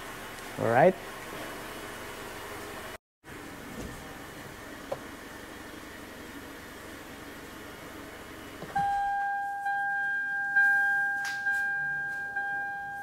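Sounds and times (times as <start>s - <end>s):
engine low hum: 0.0s - 13.0s
dashboard warning chime dings: 8.7s - 13.0s.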